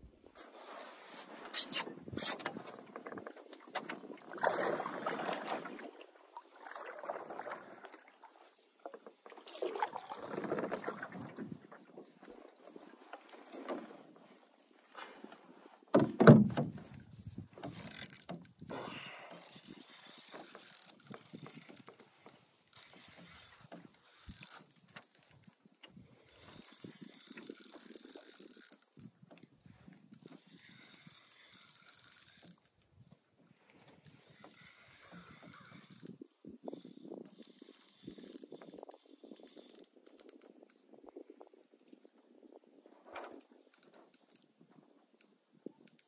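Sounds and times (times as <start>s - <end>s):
fishing reel clicking: 17.6s - 25.6s, 26.2s - 29.2s, 30.1s - 32.8s, 34.0s - 40.8s, 43.2s - 44.5s.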